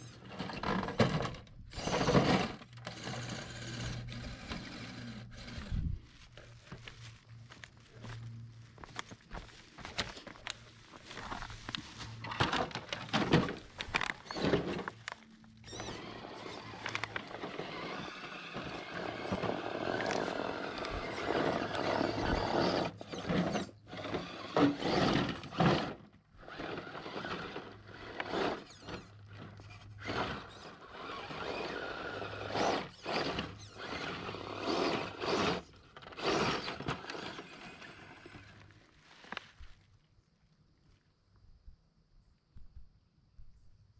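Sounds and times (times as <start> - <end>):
tyres scraping on rock and gravel: 0.0 - 39.9
small electric motor whirring: 1.7 - 6.3, 13.9 - 38.7.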